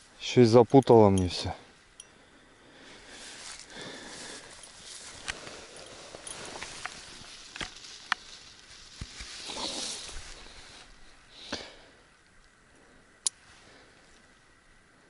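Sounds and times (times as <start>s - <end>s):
rustling in tall grass: 1.4s - 15.0s.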